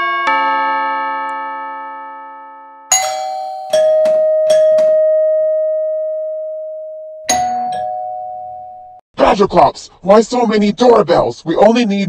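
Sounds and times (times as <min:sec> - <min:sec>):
doorbell chimes: 0:00.0 - 0:09.0.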